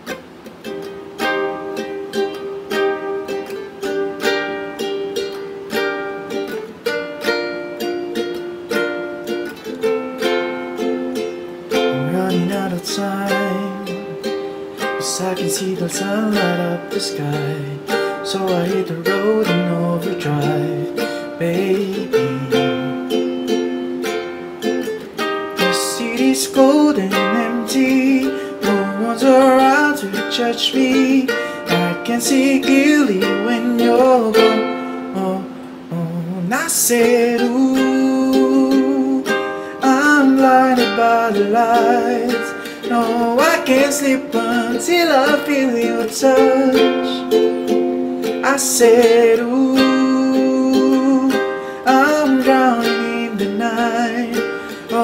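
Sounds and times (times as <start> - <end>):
ukulele strummed in chords: 0.0 - 55.0.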